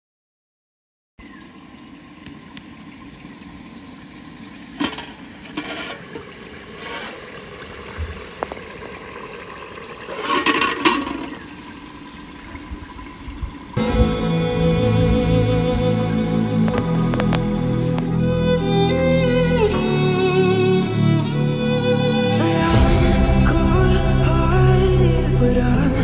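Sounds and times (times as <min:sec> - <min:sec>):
wood fire hissing: 0:03.9 - 0:13.8
fire popping: 0:15.0 - 0:18.2.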